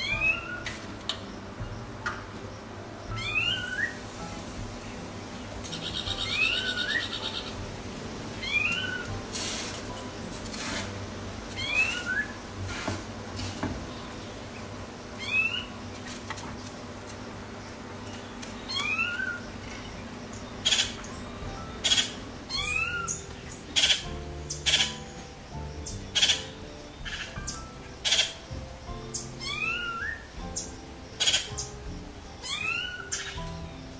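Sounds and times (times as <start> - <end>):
whistled bird call: 3.2 - 4.0, 11.6 - 12.4
sharp scrapes or knocks: 9.4 - 11.0, 12.6 - 13.8.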